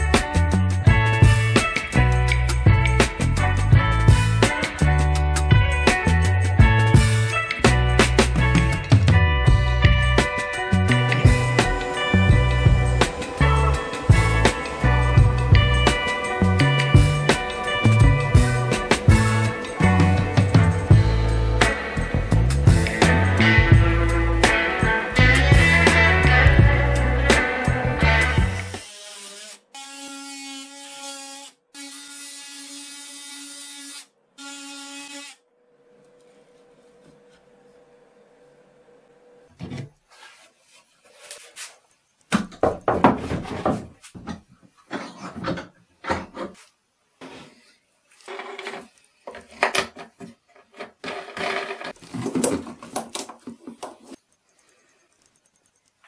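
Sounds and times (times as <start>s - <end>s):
cordless drill motor whining: 28.6s - 30.9s
faint hum: 35.5s - 39.5s
wood and tools knocking: 42.3s - 47.4s, 48.3s - 54.2s.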